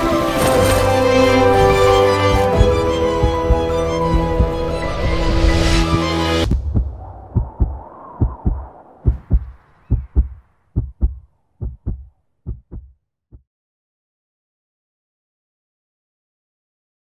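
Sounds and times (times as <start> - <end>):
music: 0.0 - 6.8
heartbeat thumps: 2.3 - 13.4.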